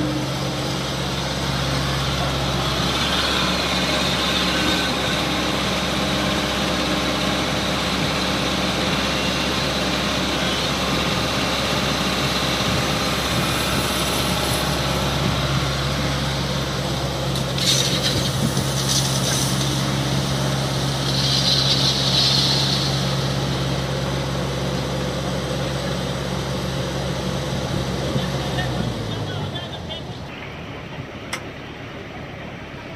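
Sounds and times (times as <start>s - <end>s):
deep steady tone: 0.0s - 5.4s
excavator diesel engine running: 0.0s - 32.9s
hydraulics working: 0.0s - 32.9s.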